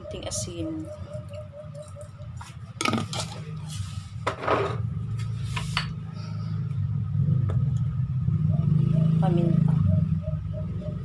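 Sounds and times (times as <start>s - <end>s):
cutlery scraping glass bowl: 2.8s - 3.4s.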